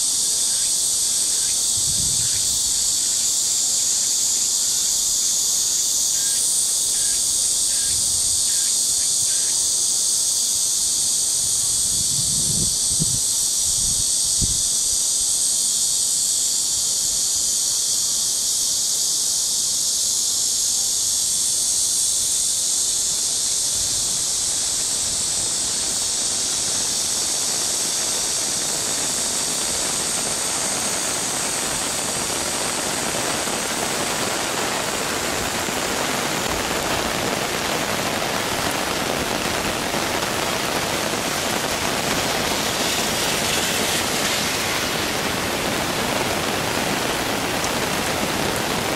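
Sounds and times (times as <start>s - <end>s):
rain falling on water: 24.6s - 48.9s.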